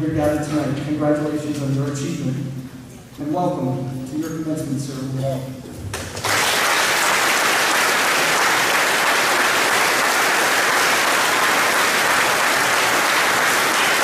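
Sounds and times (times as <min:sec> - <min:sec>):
crowd applauding: 0:05.9 - 0:14.0.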